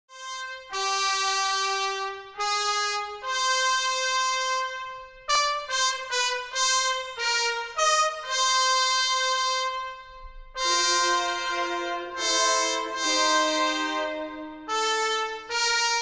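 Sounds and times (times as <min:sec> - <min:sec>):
wind instrument melody: 0:00.1 - 0:16.0
steady drone note: 0:10.5 - 0:15.1.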